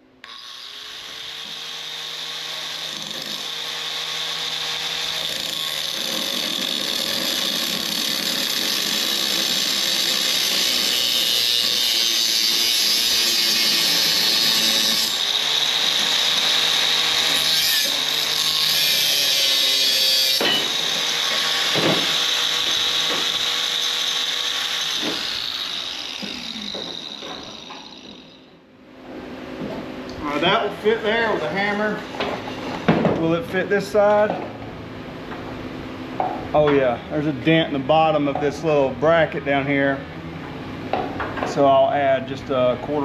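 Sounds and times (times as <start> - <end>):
power tool whining on metal: 0.2 - 28.6.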